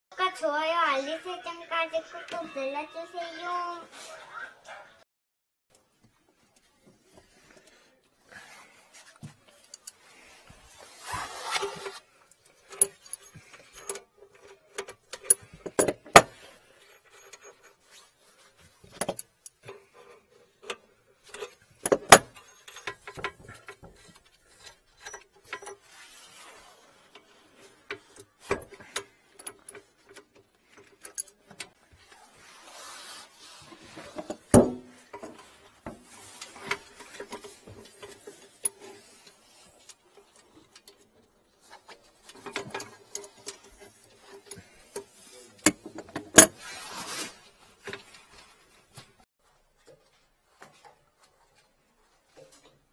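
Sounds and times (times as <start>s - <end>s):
rustling: 6.1s - 52.9s
tools clinking on metal fittings: 12.3s - 18.1s, 18.9s - 26.4s, 27.2s - 31.7s.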